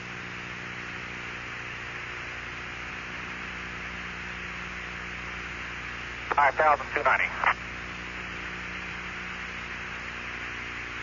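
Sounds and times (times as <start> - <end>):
low electrical hum: 0.0 - 11.0
radio channel hiss: 6.0 - 7.7.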